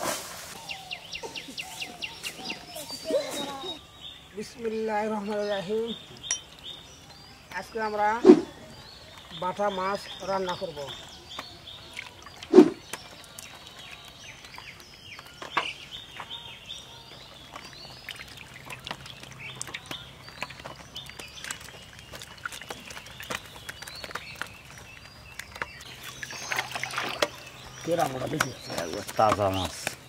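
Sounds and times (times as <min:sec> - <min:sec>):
birds chirping: 0:00.5 - 0:30.0
light clicks and taps of fish handling: 0:28.3 - 0:30.0.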